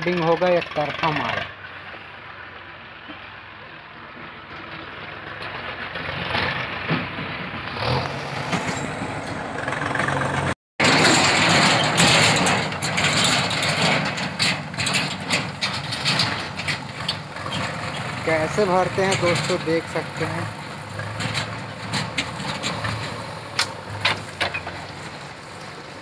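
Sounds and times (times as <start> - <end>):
diesel engine running: 0.0 - 26.0
tractor engine noise: 0.0 - 26.0.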